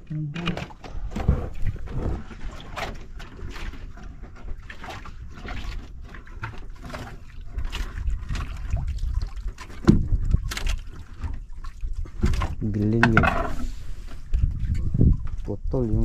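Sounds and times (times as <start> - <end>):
water splashing against boat hull: 0.0 - 16.0
low rumble: 0.8 - 3.2
knock on boat: 9.8 - 10.3.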